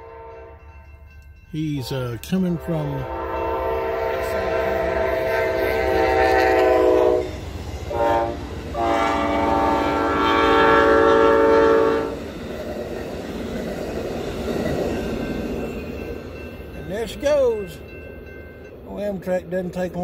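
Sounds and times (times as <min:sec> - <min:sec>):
train horn blasts: 0:00.0 - 0:00.9, 0:02.5 - 0:12.2
train rushing past: 0:00.0 - 0:20.0.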